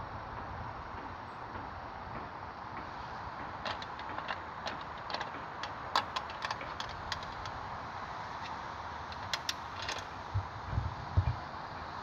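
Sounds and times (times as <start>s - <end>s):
bicycle clicks and ticks: 3.4s - 7.6s, 8.4s - 10.1s.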